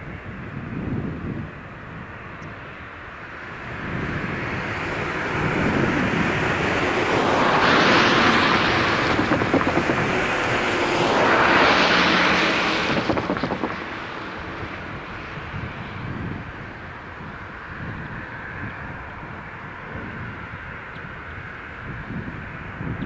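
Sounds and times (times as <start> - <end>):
cars passing: 0.0 - 23.0
wheels knocking over rails: 5.0 - 14.4.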